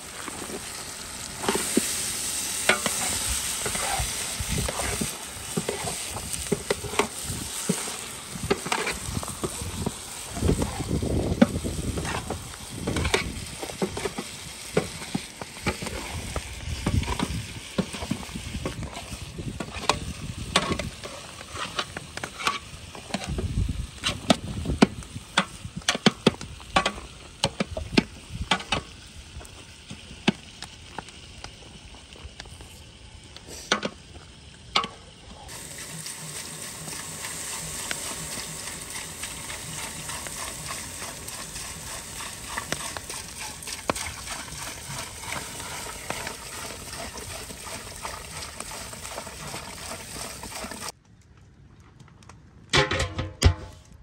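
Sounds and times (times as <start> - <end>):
food sizzling hiss: 0.0 - 51.0
metal spatula scraping a pot: 2.6 - 9.6, 18.8 - 23.4.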